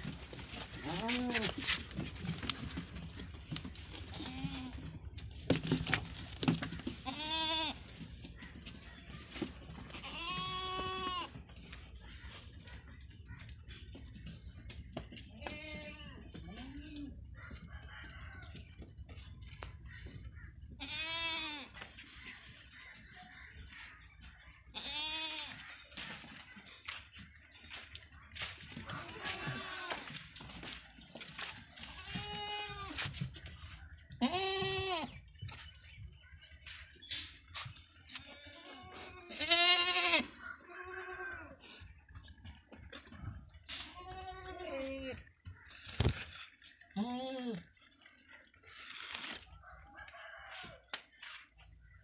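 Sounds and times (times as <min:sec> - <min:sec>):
faint animal sounds: 0:00.0 - 0:02.9, 0:15.4 - 0:35.3, 0:37.6 - 0:52.0
goats bleating: 0:07.0 - 0:07.9, 0:09.9 - 0:11.4, 0:20.8 - 0:21.7, 0:24.7 - 0:25.6, 0:28.9 - 0:30.1, 0:34.2 - 0:35.1, 0:38.3 - 0:41.6, 0:43.9 - 0:45.2.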